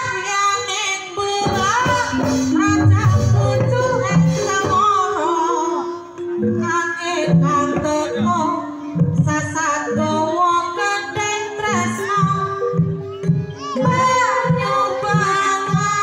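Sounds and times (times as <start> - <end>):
person singing: 0.0 - 16.0
low drum beats: 1.4 - 5.2
gamelan music: 1.8 - 16.0.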